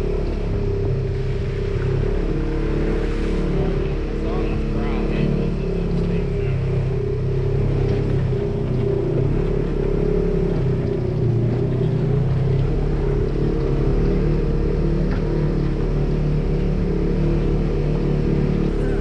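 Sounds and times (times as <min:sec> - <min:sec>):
off-road vehicle engine running: 0:00.0 - 0:19.0.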